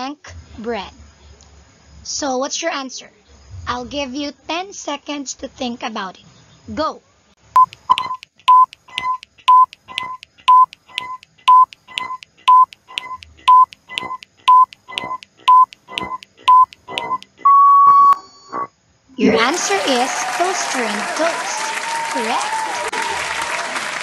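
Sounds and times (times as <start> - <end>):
countdown timer short beeps: 7.6 - 18.6
long timer beep: 7.6 - 18.6.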